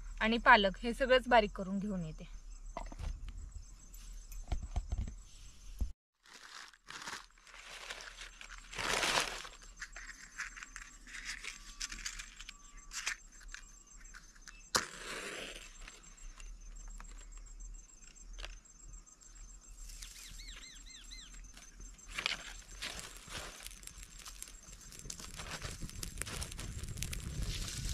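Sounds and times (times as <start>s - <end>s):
newspaper crumpling: 6.2s - 13.2s, 22.1s - 27.9s
dry grass rustling and crackling: 6.2s - 14.4s, 19.7s - 27.9s
match striking and flaring: 22.1s - 27.9s.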